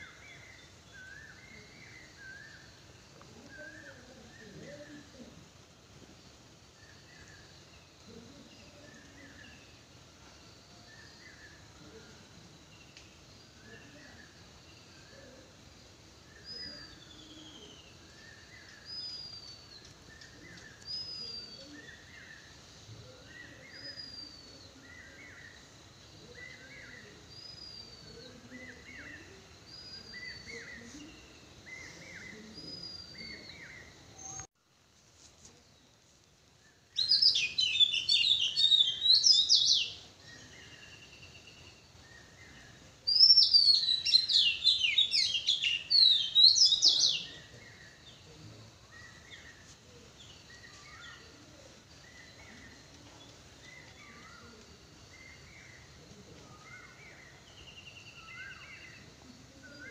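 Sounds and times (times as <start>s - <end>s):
dense bird twittering: 36.8s - 59.9s.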